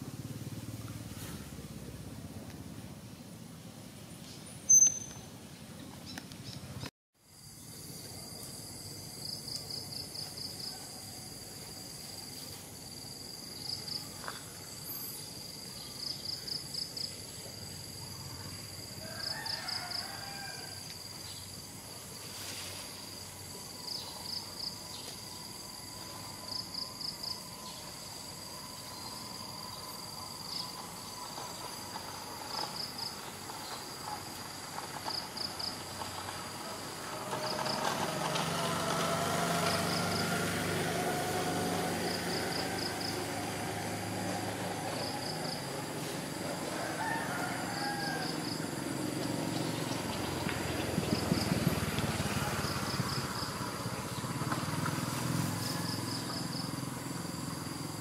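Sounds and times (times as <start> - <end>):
outdoor background noise: 0.0 - 58.0
cricket chirping: 3.2 - 58.0
motor engine hum: 27.5 - 46.8, 48.6 - 58.0.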